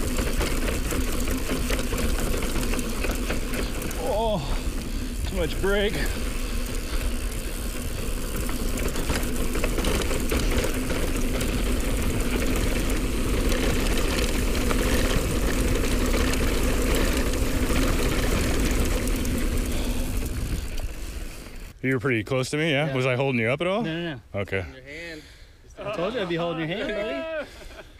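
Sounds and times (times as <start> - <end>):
steady buzzing hum: 0.0 - 21.7
tyres rolling on dirt: 0.0 - 21.8.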